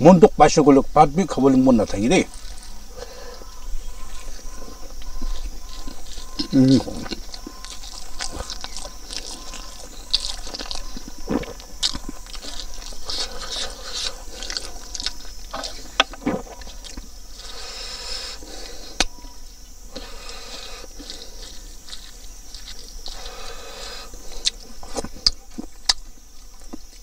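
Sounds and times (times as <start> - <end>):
wet chewing and lip smacking: 2.3 - 27.0
fingers squishing food: 5.0 - 17.6, 19.9 - 27.0.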